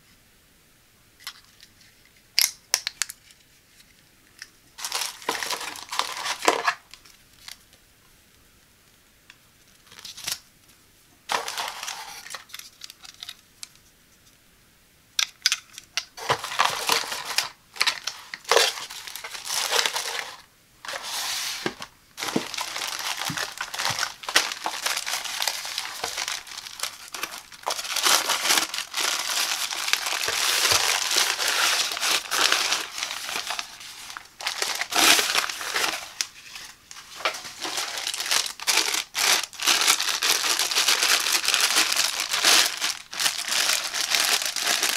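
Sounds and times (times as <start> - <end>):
paper leaflet rustling: 4.8 - 7.6, 11.3 - 13.4, 16.2 - 44.9
plastic packaging crinkling: 4.8 - 7.6, 11.3 - 13.7, 15.2 - 44.9.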